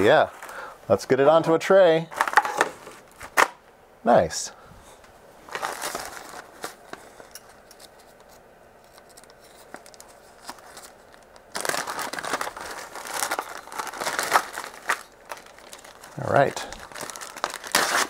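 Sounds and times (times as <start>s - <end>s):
plastic bag crinkling: 5.5s - 8.0s, 8.8s - 18.0s
paper sheets rustling: 5.5s - 18.0s.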